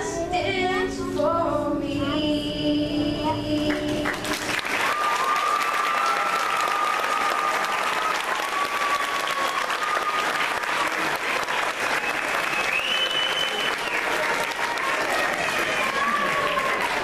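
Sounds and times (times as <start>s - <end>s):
audience applauding: 4.0s - 17.0s.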